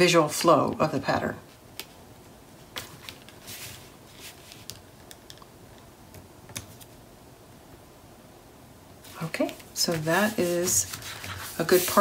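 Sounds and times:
paper strips rustling: 0:09.0 - 0:12.0.

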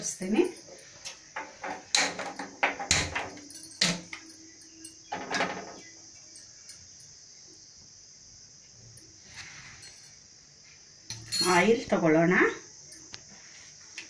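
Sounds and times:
metal knocks and clanks on stove: 0:01.3 - 0:04.3, 0:05.0 - 0:05.9.

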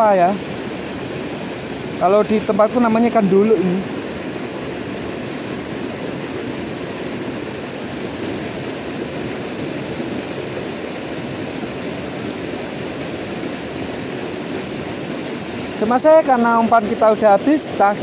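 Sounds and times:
river rushing over stones: 0:00.0 - 0:18.0.

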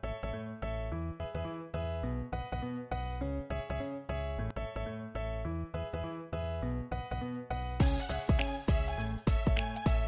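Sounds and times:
bass line: 0:00.0 - 0:10.0
background music with steady beat: 0:07.8 - 0:10.0.

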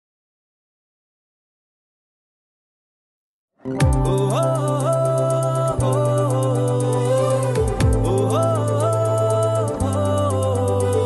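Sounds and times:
sliding melody: 0:03.7 - 0:11.0
fast ticking beat: 0:03.8 - 0:11.0
low drone: 0:03.8 - 0:11.0.

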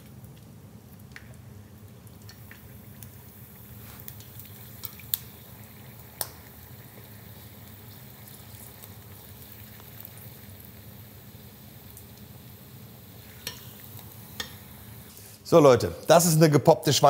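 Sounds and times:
sharp crackles: 0:00.0 - 0:11.0
deep-frying bubbling and sizzling: 0:00.0 - 0:15.4.

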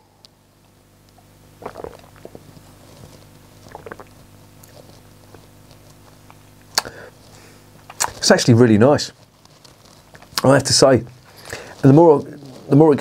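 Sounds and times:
low steady hum: 0:00.0 - 0:13.0
man swallowing: 0:01.2 - 0:02.6, 0:03.6 - 0:04.7, 0:06.6 - 0:07.1
lip smacks and clicks: 0:05.8 - 0:07.0, 0:07.8 - 0:08.2.

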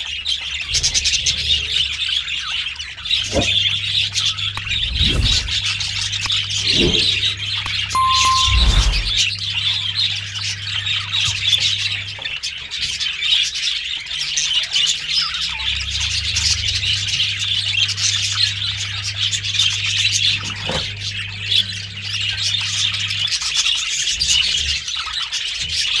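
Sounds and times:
low steady hum: 0:03.2 - 0:12.2.

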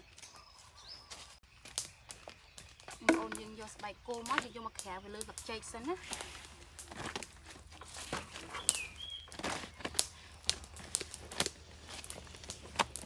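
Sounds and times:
bird chirp: 0:00.0 - 0:06.3, 0:08.2 - 0:10.9
leaves crinkling: 0:00.0 - 0:13.0.

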